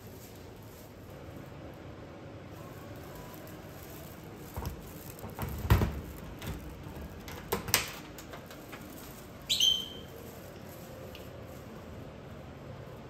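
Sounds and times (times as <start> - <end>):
locker door squeaking open: 9.5 - 10.2.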